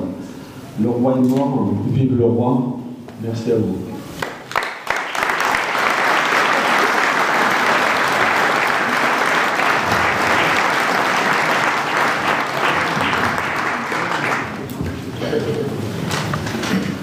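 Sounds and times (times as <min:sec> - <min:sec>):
audience applause: 0:04.2 - 0:16.3.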